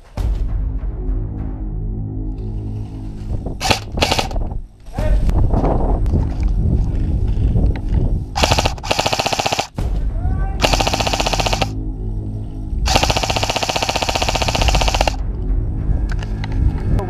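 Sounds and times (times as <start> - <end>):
airsoft rifle full-auto fire: 3.6 - 4.4, 8.4 - 9.8, 10.6 - 11.8, 12.9 - 15.2.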